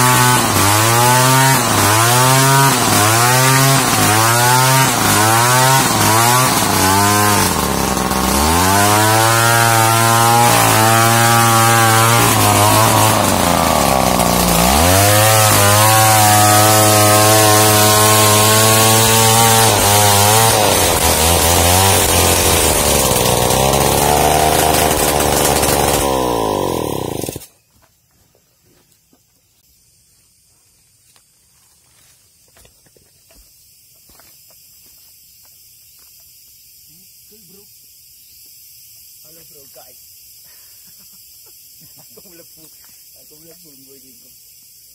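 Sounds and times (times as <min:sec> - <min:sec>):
chainsaw cutting wood: 0:00.0 - 0:27.6.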